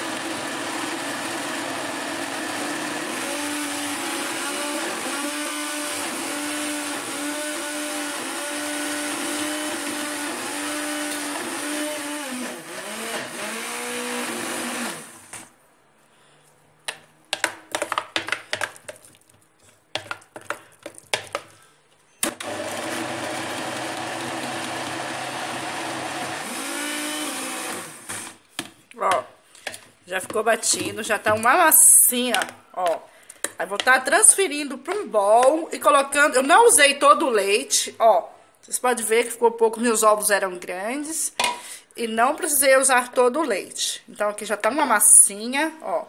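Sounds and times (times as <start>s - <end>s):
blender motor blending batter: 0.0s - 15.5s, 22.2s - 28.4s
spoon knocking plastic jar: 16.9s - 19.2s, 19.9s - 21.5s, 29.1s - 31.6s.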